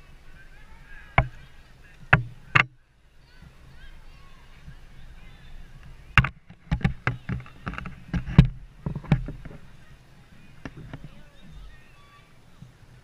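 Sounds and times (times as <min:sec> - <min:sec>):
camera handling knocks and clicks: 0:06.2 - 0:09.6.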